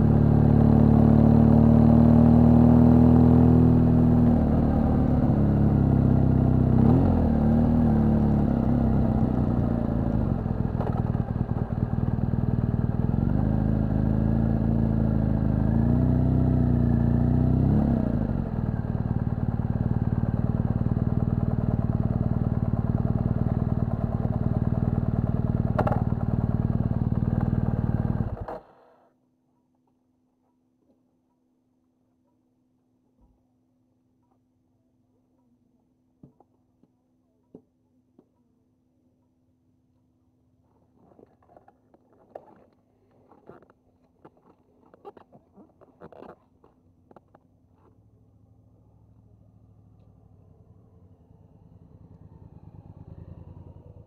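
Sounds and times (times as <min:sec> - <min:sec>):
motorcycle engine running: 0:00.0 - 0:28.6, 0:46.0 - 0:54.0.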